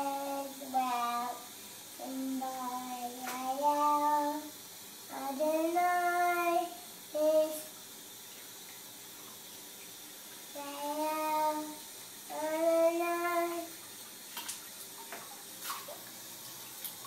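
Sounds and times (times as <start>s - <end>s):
boy singing: 0.0s - 1.4s, 2.0s - 4.5s, 5.1s - 7.7s, 10.6s - 13.8s.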